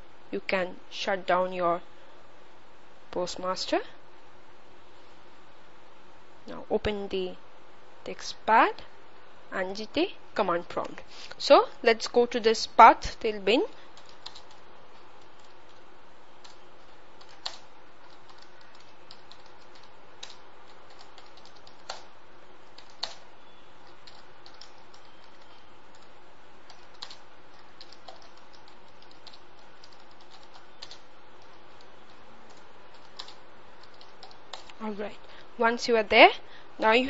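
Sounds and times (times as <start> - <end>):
computer keyboard typing: 13.9 - 15.8, 16.4 - 23.2, 23.8 - 34.8.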